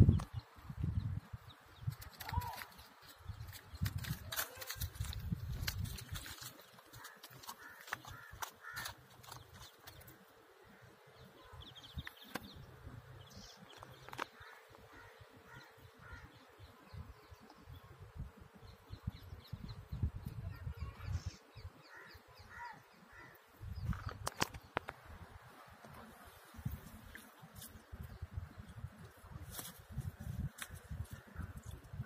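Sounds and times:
wind on microphone: 0.0 - 6.5, 14.9 - 21.8, 23.6 - 32.0
bird calls: 6.2 - 17.6, 18.7 - 25.0
crow cawing: 6.9 - 9.0, 14.4 - 16.3, 21.9 - 23.4.

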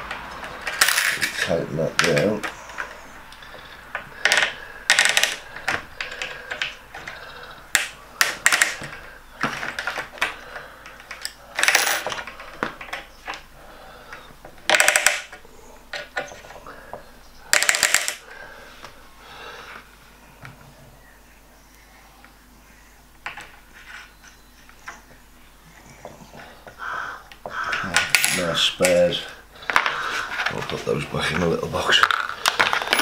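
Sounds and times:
metal parts clicking on rail: 14.6 - 16.6.

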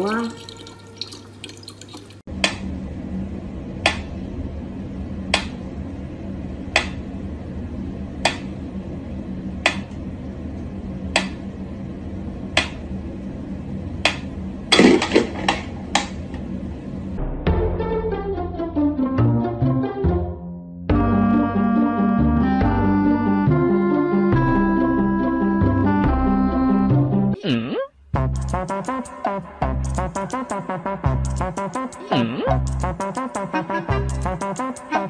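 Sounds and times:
low hum: 2.2 - 18.5.

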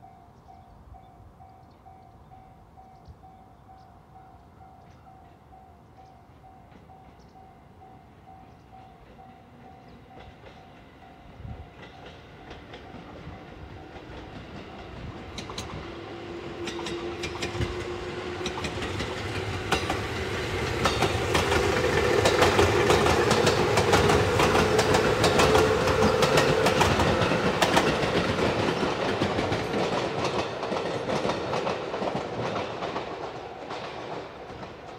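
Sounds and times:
train wheels clicking over rail joints: 11.6 - 34.9.

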